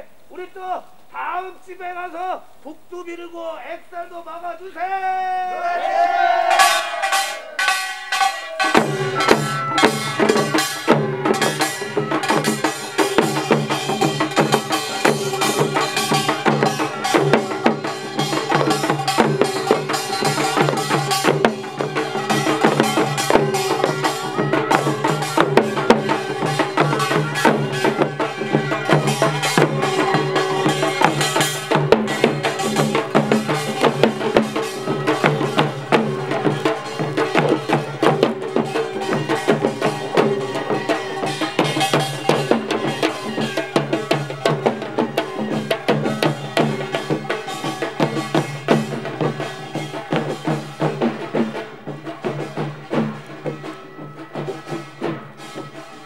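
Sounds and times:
percussion band drumming: 5.7s - 56.0s
small gong beaten fast: 6.5s - 12.6s.

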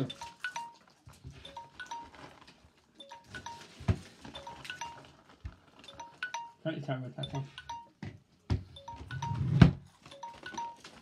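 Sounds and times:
light background music: 5.9s - 8.1s.

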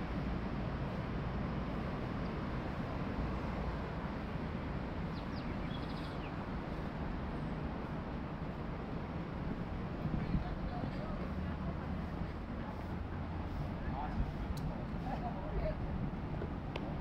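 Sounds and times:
road traffic rumble: 0.0s - 17.0s
birds chirping: 5.1s - 6.4s.

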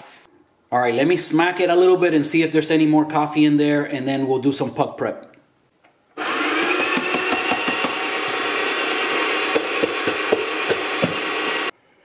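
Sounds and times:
coffee grinder motor whine: 6.2s - 11.7s
grinder crackling: 6.2s - 11.7s.

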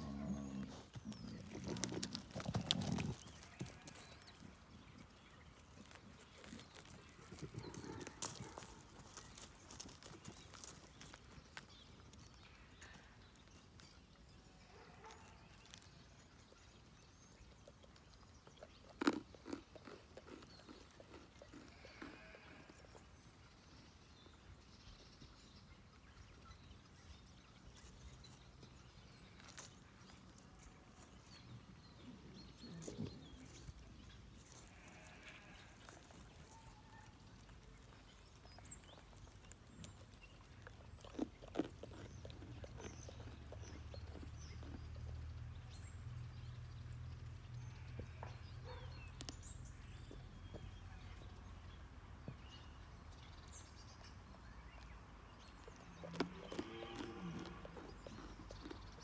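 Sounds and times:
nuts crunching and clicking: 0.7s - 4.4s, 5.4s - 14.2s, 15.0s - 22.3s, 34.3s - 45.2s, 55.5s - 59.0s.

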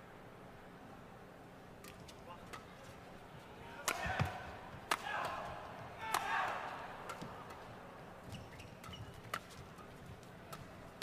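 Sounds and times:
rackets hitting shuttlecock: 1.8s - 3.0s, 3.8s - 11.0s
shoes squeaking on court: 8.2s - 10.8s.

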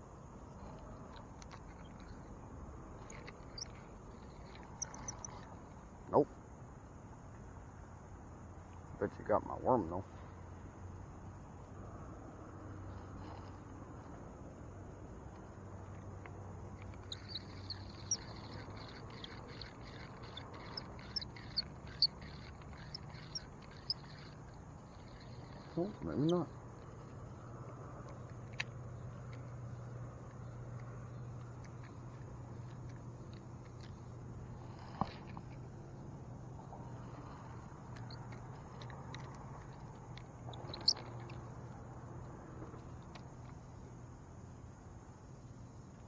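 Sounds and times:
reel high chirps: 3.0s - 5.7s, 16.9s - 27.0s, 40.5s - 41.3s
fishing reel whirring and clicking: 16.9s - 26.4s.

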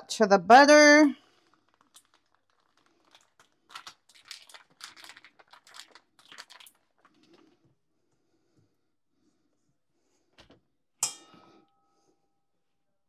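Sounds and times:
foil wrapper crinkling: 1.3s - 7.4s.

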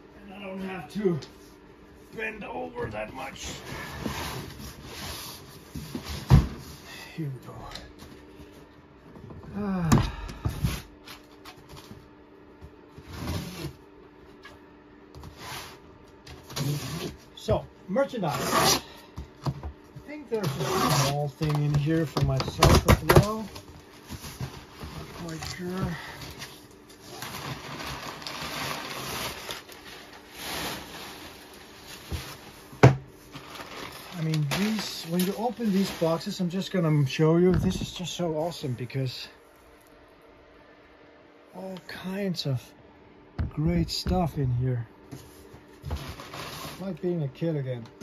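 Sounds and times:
faint steady hum: 0.0s - 48.0s
person grunting: 9.5s - 10.4s
cardboard box and paper rustling: 20.3s - 32.6s, 33.3s - 36.7s.

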